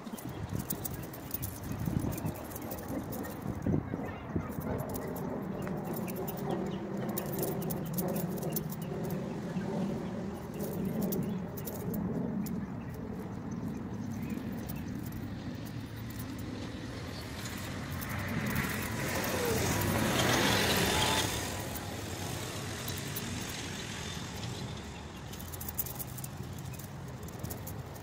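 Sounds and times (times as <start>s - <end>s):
vehicle passing by: 14.3s - 28.0s.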